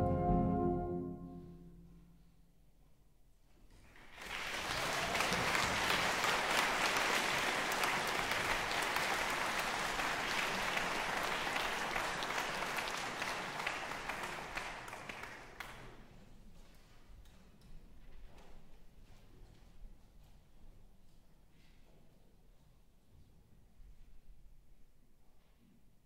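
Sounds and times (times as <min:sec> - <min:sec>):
audience applauding: 0:03.8 - 0:15.9.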